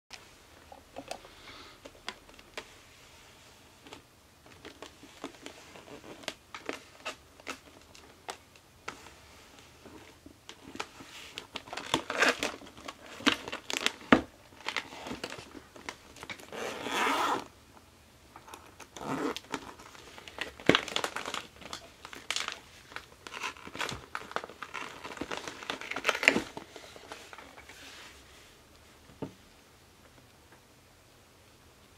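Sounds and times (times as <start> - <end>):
plastic zip bag crinkling: 9.9 - 17.5, 18.4 - 27.7.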